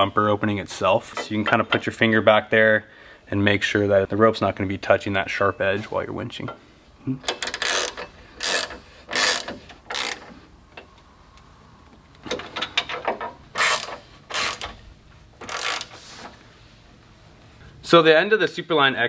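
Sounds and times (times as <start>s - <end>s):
ratchet wrench clicking: 7.3s - 10.3s, 13.5s - 14.8s, 15.4s - 15.9s.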